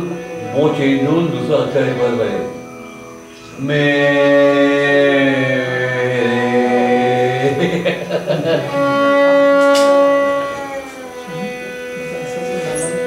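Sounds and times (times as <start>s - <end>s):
bowed violin: 0.0s - 13.0s
man singing held note: 3.4s - 7.7s.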